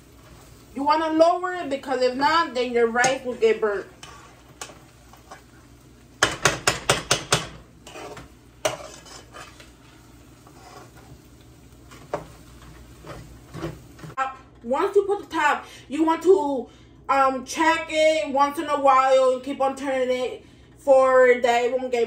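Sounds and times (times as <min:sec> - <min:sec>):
metal spoon scraping a pot: 0:03.0 - 0:05.6, 0:06.4 - 0:11.2.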